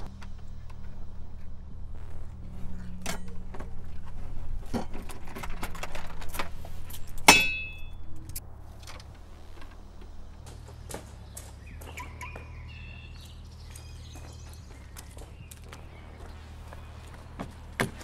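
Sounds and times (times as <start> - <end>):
low steady hum: 0.0 - 18.0
loud ringing metallic clink: 7.3 - 8.0.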